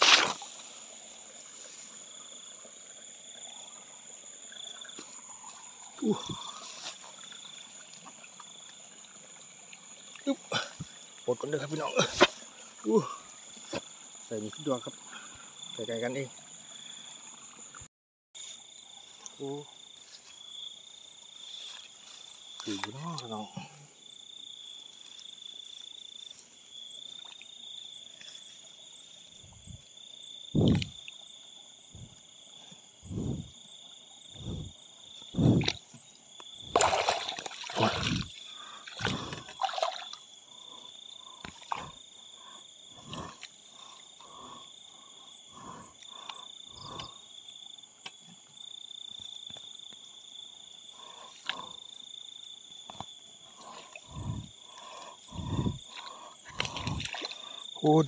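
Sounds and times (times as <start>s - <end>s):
crickets trilling: 0.0s - 58.0s
short low calls: 35.4s - 35.8s, 55.3s - 55.8s
splashes in shallow water: 36.5s - 40.3s, 55.5s - 57.7s.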